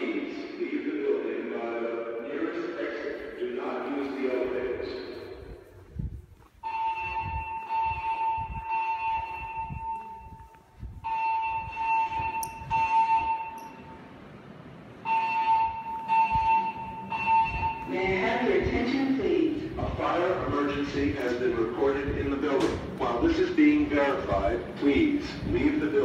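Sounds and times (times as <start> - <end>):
footsteps on tiled floor: 5.3 - 13.3
fire alarm evacuation beeps: 6.6 - 14.2, 15.0 - 18.7.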